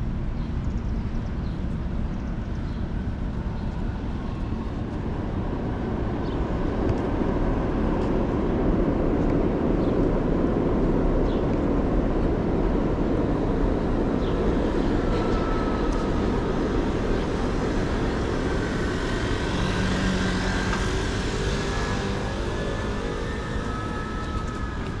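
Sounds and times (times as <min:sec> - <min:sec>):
city street traffic rumble: 0:00.0 - 0:25.0
faint high whine: 0:13.0 - 0:25.0.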